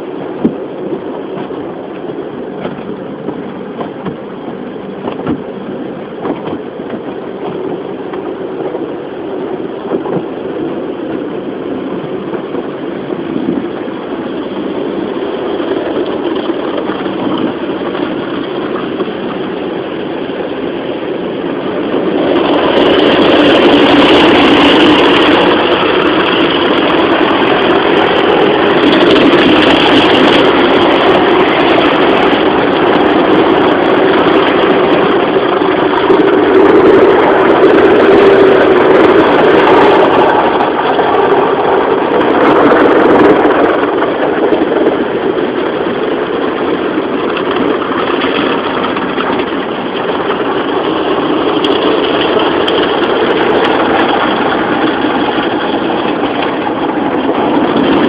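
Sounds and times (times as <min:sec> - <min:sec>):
rotating car wash brushes: 0:00.0 - 0:45.5
car wash machinery running: 0:00.0 - 0:58.0.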